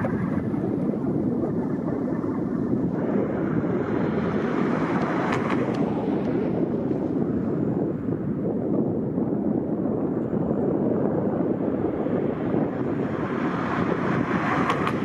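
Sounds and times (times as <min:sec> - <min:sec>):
car passing: 0:00.0 - 0:07.6, 0:11.6 - 0:15.0
road traffic: 0:00.0 - 0:15.0
wind on microphone: 0:00.0 - 0:15.0.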